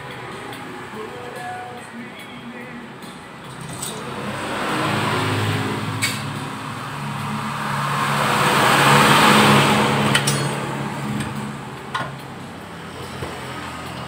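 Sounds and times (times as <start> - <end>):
road vehicle passing by: 3.4 - 14.0.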